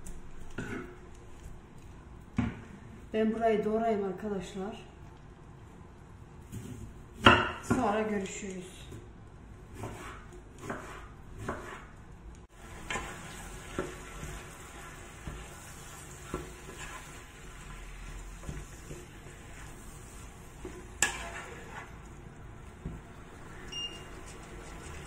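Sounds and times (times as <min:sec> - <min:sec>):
knife chopping on cutting board: 0:09.7 - 0:11.9
wooden spatula scraping a pan: 0:09.8 - 0:12.0, 0:12.6 - 0:22.1
chicken sizzling in a frying pan: 0:12.6 - 0:20.6.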